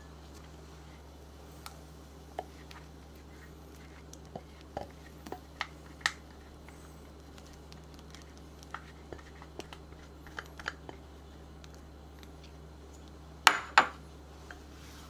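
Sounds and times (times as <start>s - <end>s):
steady low hum: 0.0s - 15.0s
small clicks and splats: 2.4s - 13.2s.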